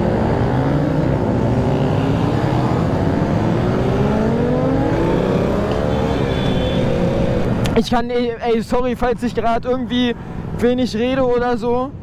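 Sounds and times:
motorcycle engines running: 0.0s - 7.8s.

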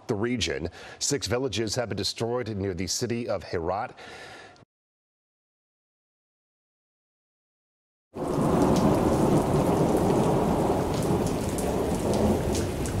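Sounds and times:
low rumble of thunder: 8.2s - 13.0s
steady rain: 8.2s - 13.0s.

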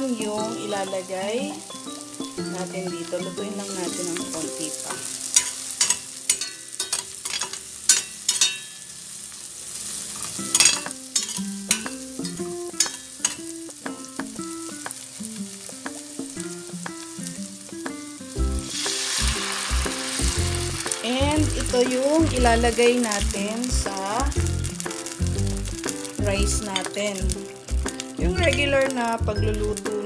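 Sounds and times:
food sizzling in a pan: 0.0s - 30.0s
broth poured into hot pan: 18.3s - 30.0s.

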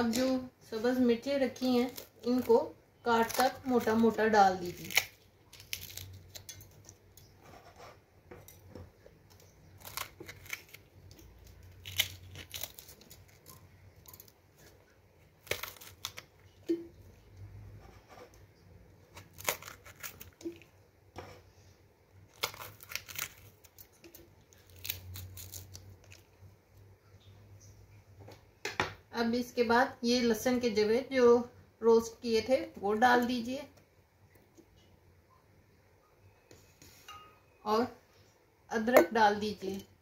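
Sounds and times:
knife cutting chillies: 1.3s - 8.7s, 9.3s - 16.8s, 19.1s - 20.6s.

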